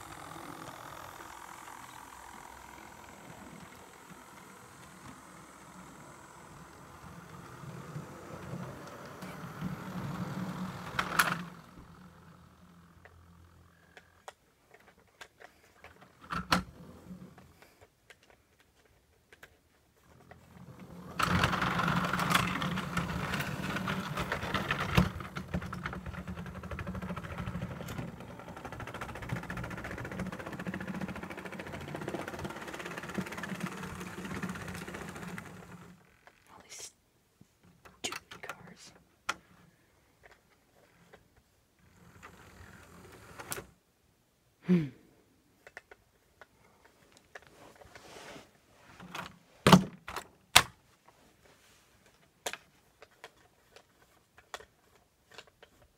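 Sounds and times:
model train motor whirring: 0.0 - 14.3, 20.2 - 36.4, 41.8 - 43.8.

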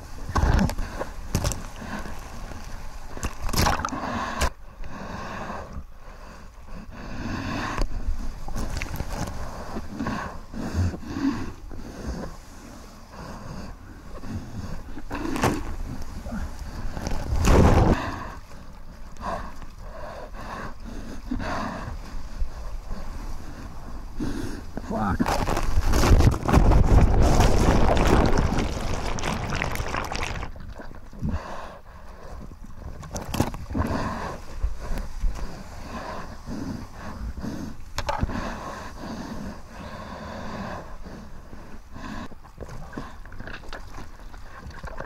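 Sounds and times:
water sloshing and splashing: 0.0 - 4.0, 25.2 - 31.3, 42.4 - 45.0
underwater churning rumble: 22.6 - 38.9
water rushing past surfboard: 25.7 - 30.8
whitewash crashing: 26.4 - 30.5.

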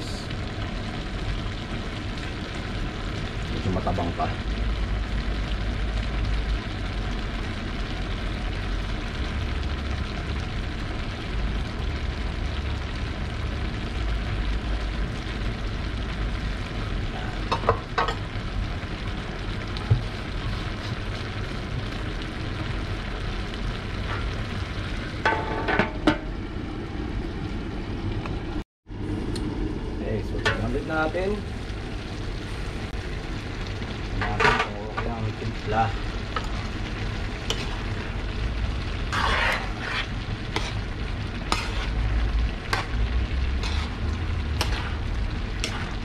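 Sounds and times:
stew sizzling and bubbling: 0.0 - 46.0
low hum: 18.3 - 34.4, 35.0 - 46.0.

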